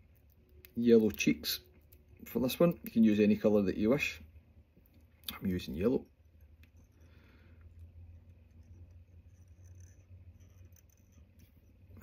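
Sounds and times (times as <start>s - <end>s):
low steady hum: 0.0s - 12.0s
fingers and thread rustling: 4.6s - 12.0s.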